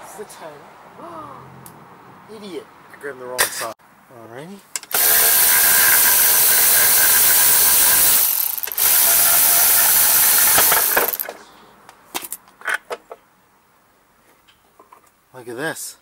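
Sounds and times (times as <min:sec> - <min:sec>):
cordless electric ratchet running: 0:04.9 - 0:11.3.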